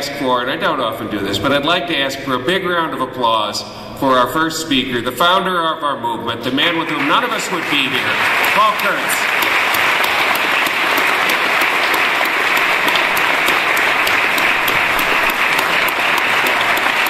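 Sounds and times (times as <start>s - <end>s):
audience applause: 6.7s - 17.0s.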